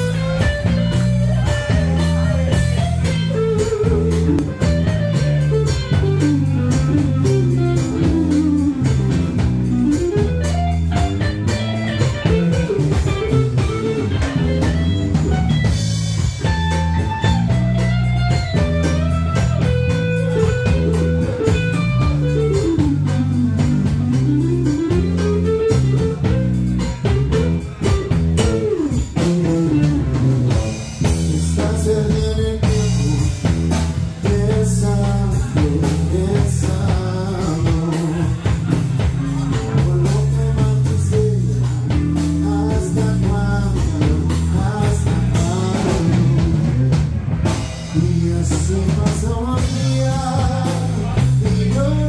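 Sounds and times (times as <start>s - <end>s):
bass line: 0.0s - 52.0s
drum kit beat: 0.0s - 52.0s
electric guitar melody: 0.0s - 52.0s.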